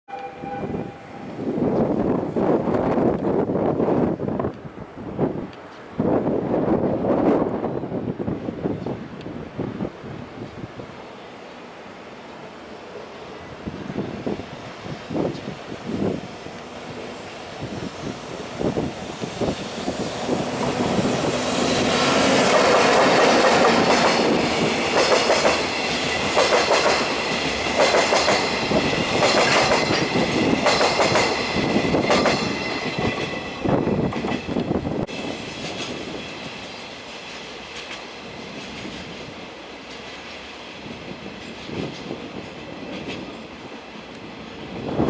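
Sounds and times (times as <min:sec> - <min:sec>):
train wheels clacking over rail joints: 0:20.3 - 0:43.6.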